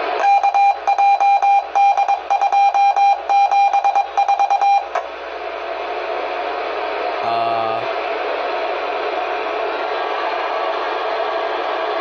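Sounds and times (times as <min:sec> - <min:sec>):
rapid high-tone alert beeps: 0:00.2 - 0:04.9
steady radio hiss: 0:04.9 - 0:08.8.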